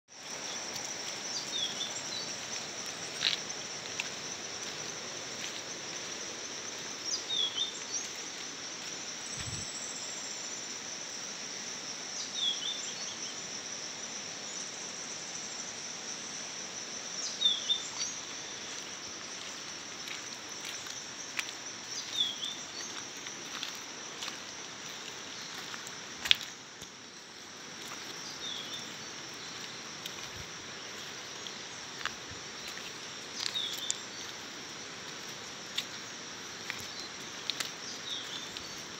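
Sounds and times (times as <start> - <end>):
insect chorus trilling: 0.1 - 38.9.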